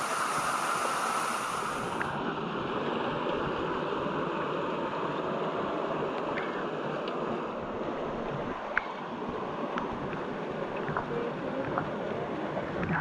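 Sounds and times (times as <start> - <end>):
waterfall rushing into pool: 0.0 - 2.2.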